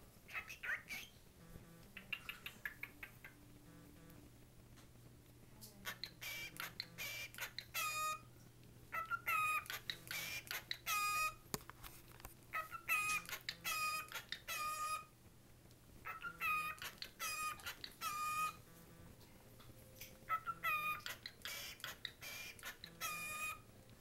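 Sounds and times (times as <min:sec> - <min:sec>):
cockatiel whistling: 0:05.9 - 0:08.3, 0:08.9 - 0:11.4, 0:12.6 - 0:15.1, 0:16.0 - 0:18.6, 0:20.3 - 0:23.6.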